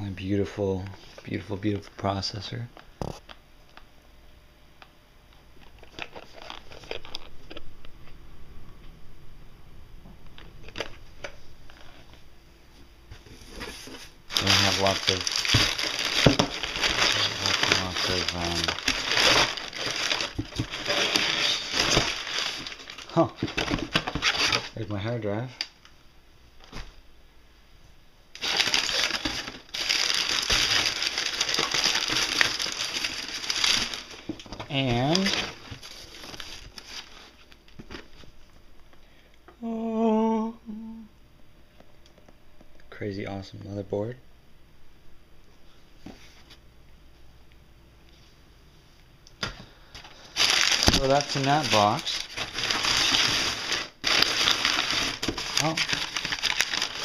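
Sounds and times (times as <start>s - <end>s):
packing paper rustling: 5.6s - 7.6s, 13.2s - 25.0s, 28.4s - 38.5s, 49.9s - 57.0s
cardboard boxes being handled: 13.2s - 24.6s, 50.4s - 57.0s.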